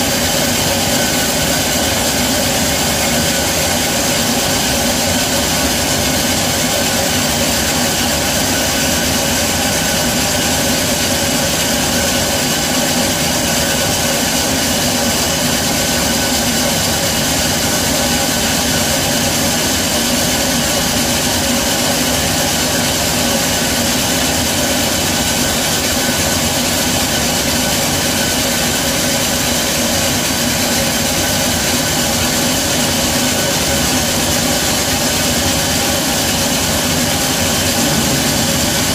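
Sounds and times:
band saw drone and whine: 37.2s - 38.9s.

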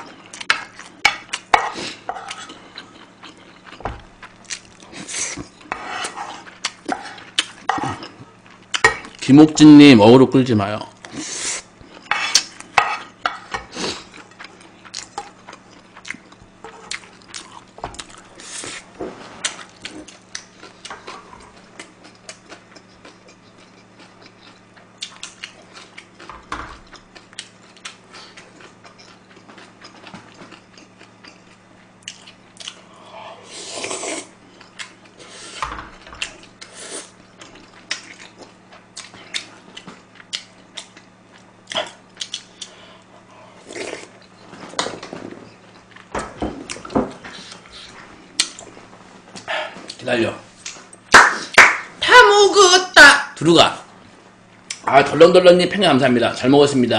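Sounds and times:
chewing: 0.0s - 9.2s, 11.8s - 18.8s, 19.4s - 33.1s.

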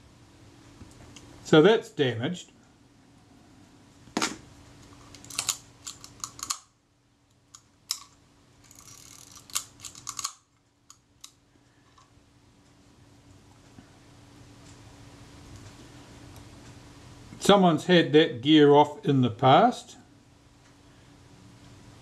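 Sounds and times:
small metal tools clicking: 5.1s - 6.7s, 7.5s - 11.4s.

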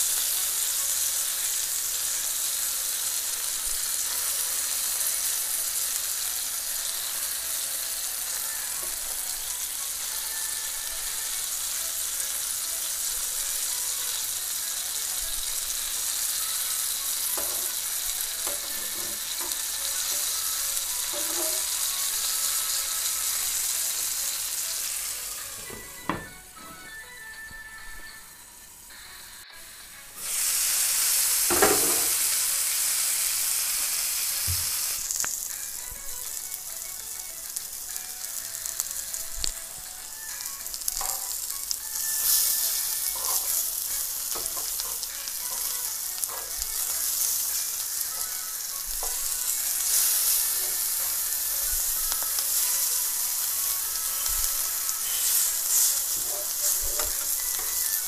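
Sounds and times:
food sizzling in a pan: 0.0s - 58.0s
spatula scraping a pan: 18.4s - 20.2s, 21.0s - 21.8s, 42.1s - 47.6s, 54.7s - 57.9s.

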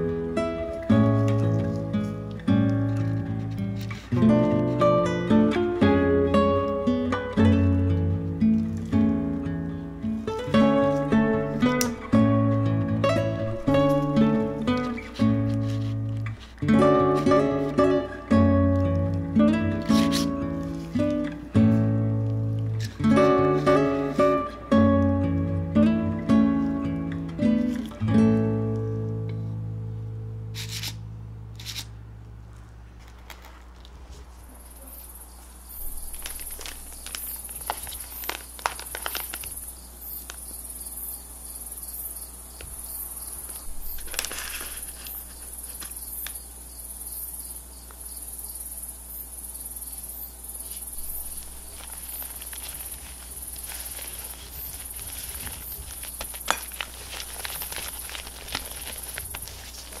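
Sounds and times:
guitar music: 0.0s - 32.5s.

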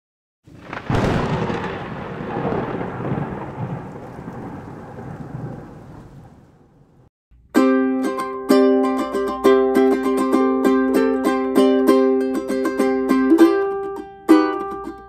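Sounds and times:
rain: 0.5s - 7.1s
rolling thunder rumble: 0.5s - 7.1s
sharp thunderclap: 0.5s - 7.1s
ukulele chords: 7.3s - 15.0s.

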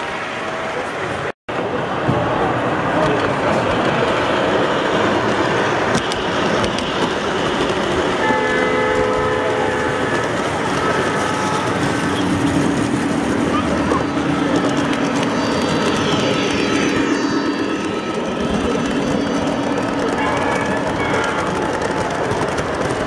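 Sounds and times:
model train wheels rolling on track: 2.6s - 23.0s.

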